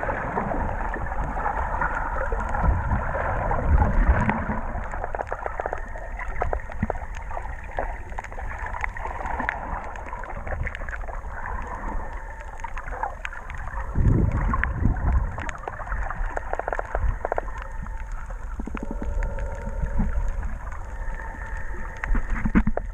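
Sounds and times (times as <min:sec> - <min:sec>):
sharp clicks and crackles: 0:00.0 - 0:22.9
underwater rumble of moving water: 0:00.0 - 0:22.9.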